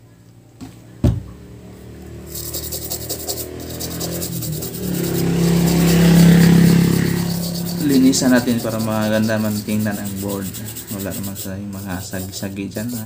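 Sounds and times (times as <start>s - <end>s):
toothbrush scrubbing circuit board: 2.2s - 13.0s.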